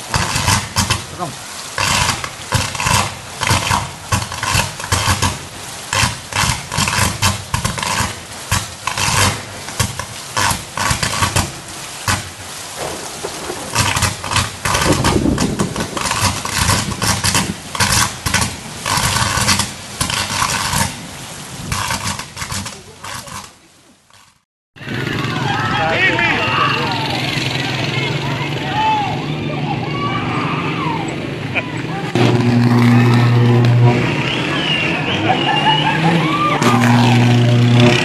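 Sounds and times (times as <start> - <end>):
electrical arc crackling and buzzing: 0.0 - 24.4.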